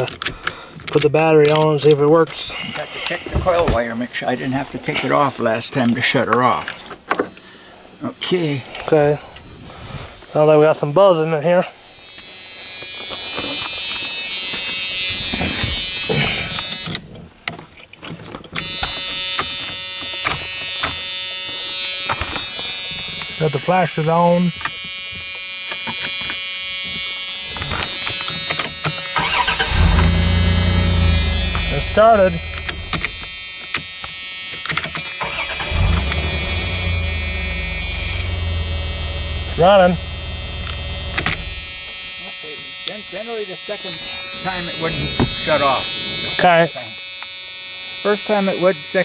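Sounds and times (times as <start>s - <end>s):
electrical buzzing: 27.4s - 33.5s, 35.0s - 42.2s
car engine restarting and idling: 29.0s - 33.3s, 35.1s - 42.0s
key and ignition switch clicks: 31.1s - 33.3s.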